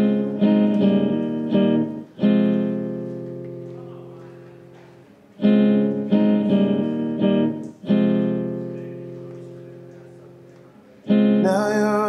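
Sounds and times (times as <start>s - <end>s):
classical guitar strumming chords: 0.0s - 12.0s.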